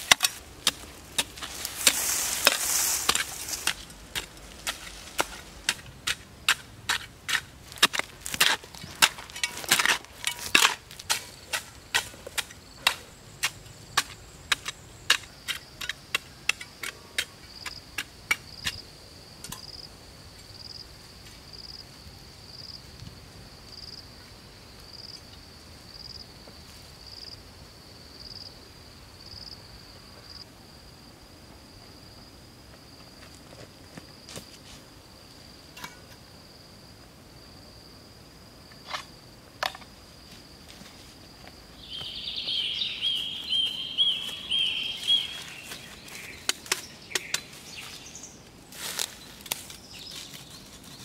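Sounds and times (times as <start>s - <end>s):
digging tool chopping clay: 0.0s - 16.6s.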